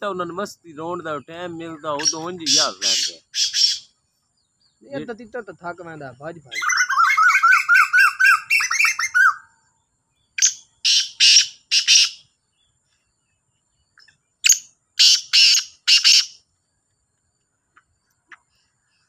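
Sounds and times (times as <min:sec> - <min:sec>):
francolin calling harshly: 0:00.9 - 0:04.0, 0:06.4 - 0:09.6, 0:10.4 - 0:12.2, 0:14.0 - 0:16.4.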